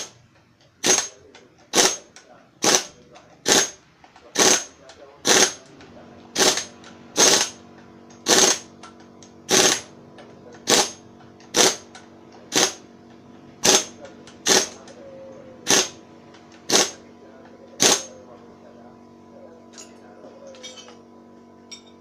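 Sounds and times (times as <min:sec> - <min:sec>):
impact wrench hammering: 0:00.0 - 0:05.7, 0:06.3 - 0:13.0, 0:13.6 - 0:15.0, 0:15.6 - 0:17.0, 0:17.7 - 0:18.2.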